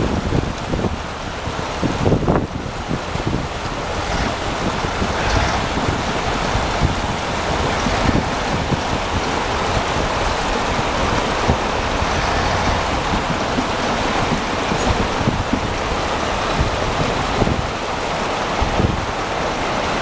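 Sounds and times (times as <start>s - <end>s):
rushing meltwater: 0.0s - 20.0s
wind buffeting microphone: 0.0s - 20.0s.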